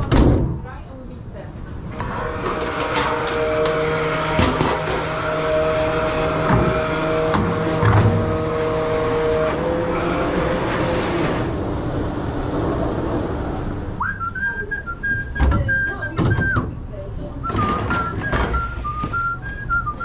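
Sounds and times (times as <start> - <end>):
person whistling a tune: 14.0 - 16.7, 17.5 - 20.0.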